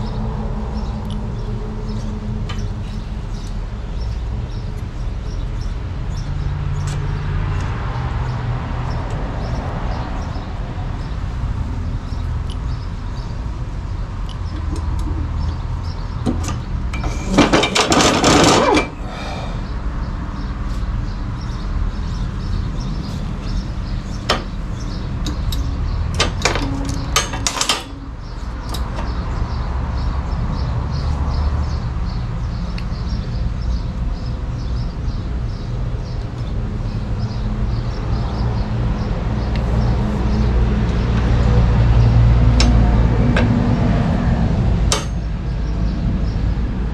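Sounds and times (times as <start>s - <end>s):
metal scraping and rattling: 16.3s - 19.0s, 25.3s - 29.2s.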